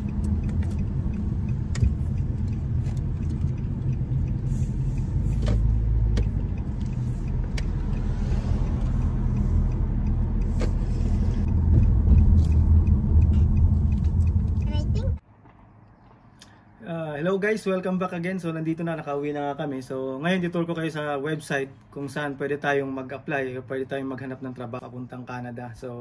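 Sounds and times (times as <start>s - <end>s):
engine and road rumble: 0.0s - 16.8s.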